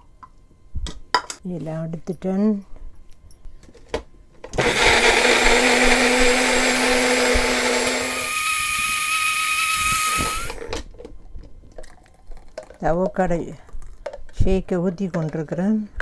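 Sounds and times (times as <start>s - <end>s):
blender motor running: 4.6s - 10.7s.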